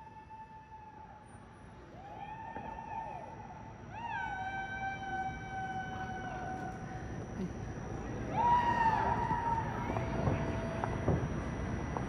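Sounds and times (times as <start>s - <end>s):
distant people whooping: 1.9s - 6.8s, 8.3s - 10.8s.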